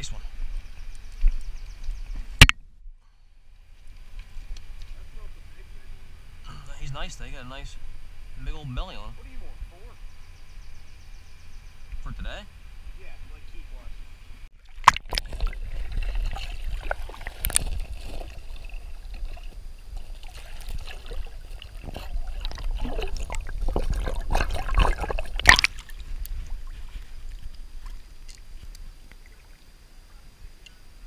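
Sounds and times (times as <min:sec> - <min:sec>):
muffled underwater stream rumbling: 0:14.6 - 0:30.7.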